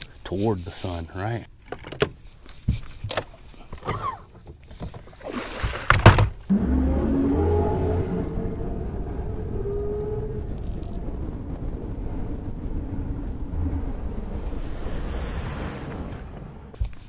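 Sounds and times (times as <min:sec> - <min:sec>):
water rushing along hull: 0:03.8 - 0:17.0
outboard motor hum: 0:03.9 - 0:14.7
wind buffeting microphone: 0:06.5 - 0:17.0.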